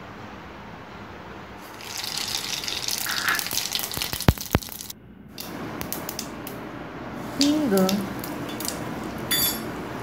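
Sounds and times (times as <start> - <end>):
seeds sizzling in hot oil: 1.6 - 4.9
oil popping: 1.7 - 6.2.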